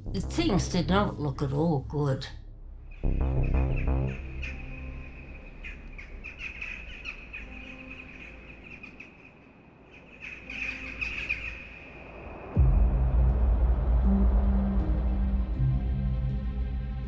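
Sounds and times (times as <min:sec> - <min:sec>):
birds chirping: 0:02.8 - 0:12.6.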